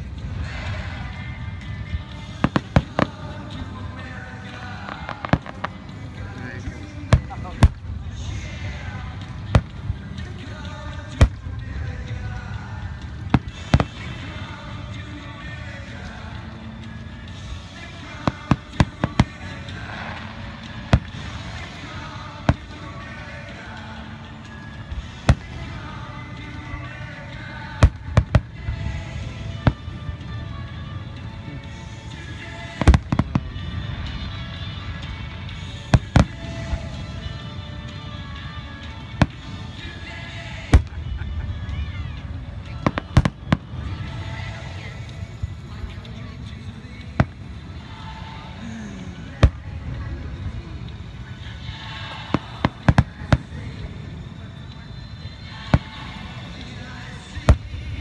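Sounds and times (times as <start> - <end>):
music: 0.0 - 58.0
fireworks booming: 2.3 - 10.4, 11.0 - 14.9, 17.9 - 24.2, 25.0 - 30.2, 32.5 - 35.0, 35.6 - 37.2, 39.2 - 39.8, 40.4 - 41.4, 42.6 - 44.8, 47.0 - 54.4, 55.6 - 58.0.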